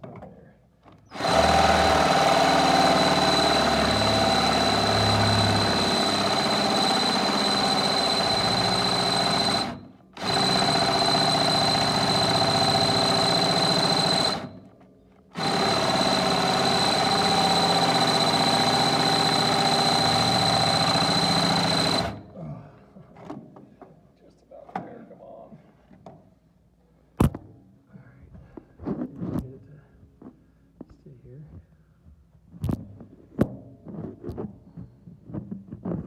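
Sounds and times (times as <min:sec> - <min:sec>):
electric drill boring through metal: 0:01.1 - 0:14.6, 0:15.4 - 0:22.3.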